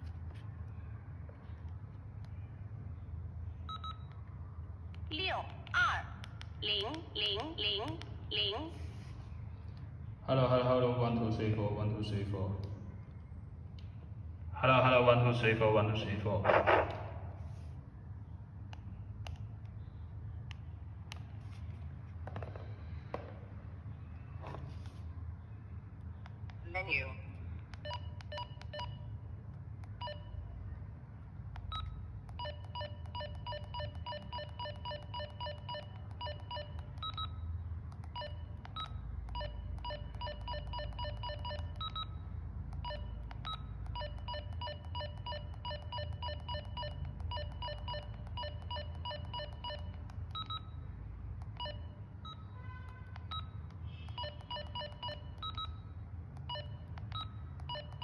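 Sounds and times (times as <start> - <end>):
low steady hum: 0.0 - 58.0
radio keypad beeps: 38.0 - 42.2, 42.8 - 50.8, 53.2 - 58.0.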